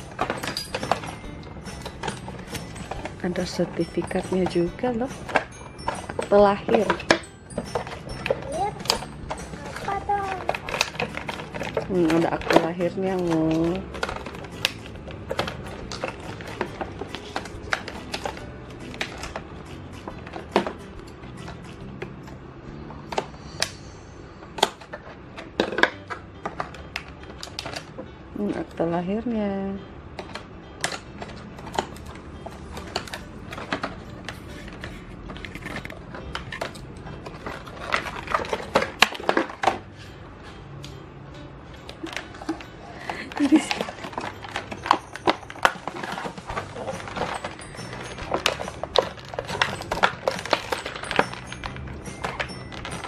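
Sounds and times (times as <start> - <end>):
paper cards clicking and crinkling: 0.0 - 23.8, 24.6 - 28.1, 30.2 - 40.2, 41.8 - 53.0
scissors cutting plastic: 3.8 - 22.2, 30.2 - 39.9, 41.9 - 53.0
plastic snapping and crackling: 3.8 - 22.3, 24.6 - 28.1, 30.2 - 39.8, 41.8 - 53.0.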